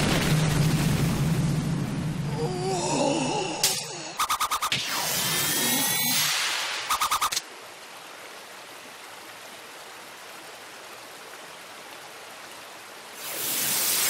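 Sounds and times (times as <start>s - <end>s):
steady outdoor hiss: 0.9s - 14.0s
rapid pulsing sound effect: 4.2s - 7.4s.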